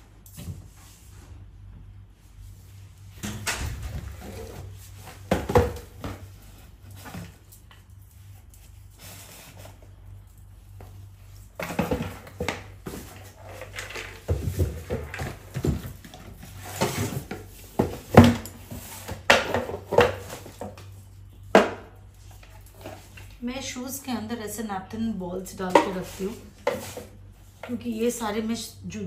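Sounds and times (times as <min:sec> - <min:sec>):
cardboard boxes rustling and scraping: 0:11.6 - 0:20.9, 0:25.9 - 0:27.5.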